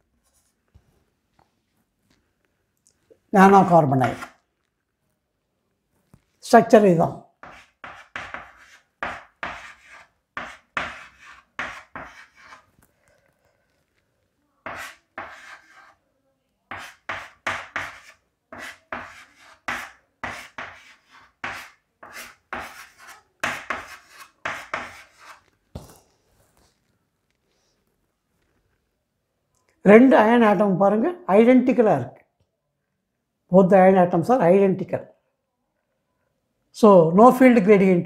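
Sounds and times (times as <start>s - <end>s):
scratchy writing strokes: 3.6s - 4.4s, 7.4s - 12.9s, 14.6s - 16.0s, 16.7s - 25.6s.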